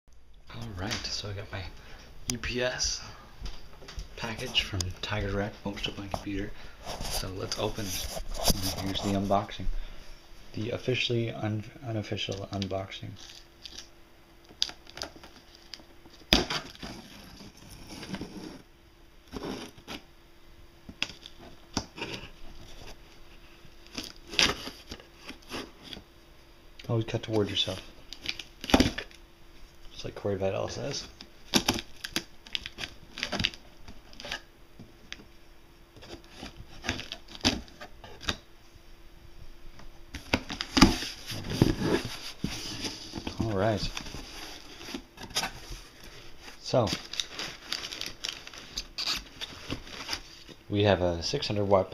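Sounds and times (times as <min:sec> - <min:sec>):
cardboard scraping: 0:04.3 - 0:09.5, 0:16.4 - 0:18.7, 0:19.3 - 0:20.0, 0:40.2 - 0:50.5.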